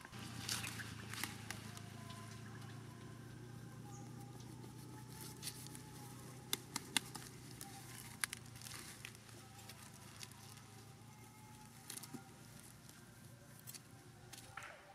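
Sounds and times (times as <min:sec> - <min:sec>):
low steady hum: 0:00.0 - 0:14.9
knife snapping cauliflower stalks: 0:05.2 - 0:09.1.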